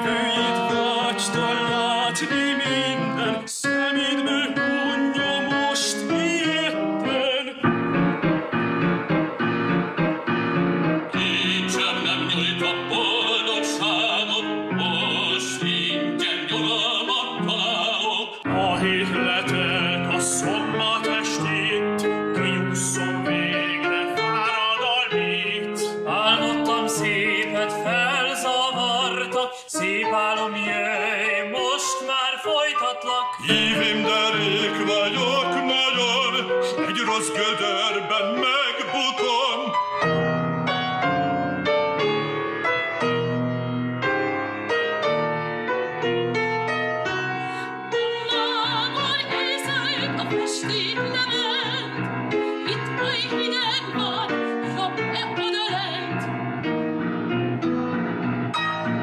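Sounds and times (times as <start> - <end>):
piano accompaniment: 0.0 - 59.0
operatic solo singing: 11.1 - 39.8, 48.0 - 52.0
woman singing: 47.9 - 56.2.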